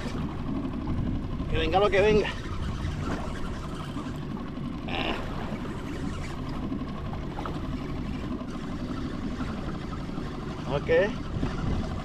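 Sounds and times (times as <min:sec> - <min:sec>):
water lapping against kayak hull: 0:00.0 - 0:12.0
wind on microphone: 0:11.2 - 0:12.0.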